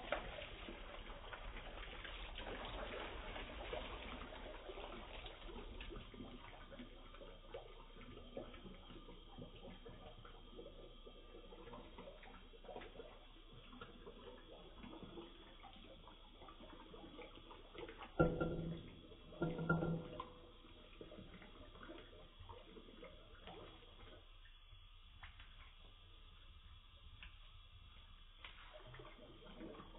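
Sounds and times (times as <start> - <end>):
ringing knocks: 18.2 - 20.5
tap water trickling into metal cup: 18.2 - 21.4.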